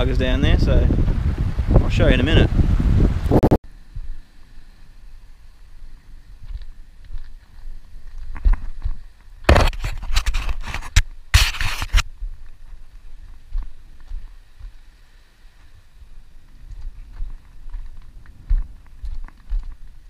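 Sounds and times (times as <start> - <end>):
footsteps on rock: 6.4 - 14.8, 15.6 - 20.0
shoes scraping on rock: 6.5 - 14.8.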